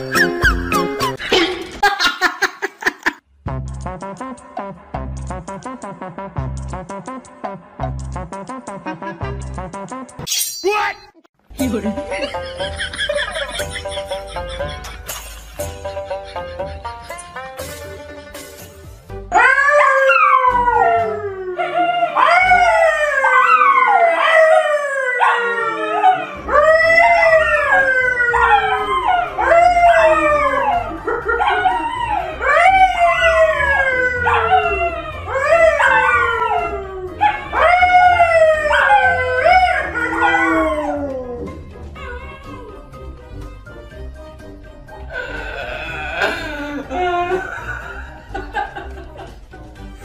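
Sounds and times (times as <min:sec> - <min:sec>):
animal howling: 0:19.4 - 0:43.0.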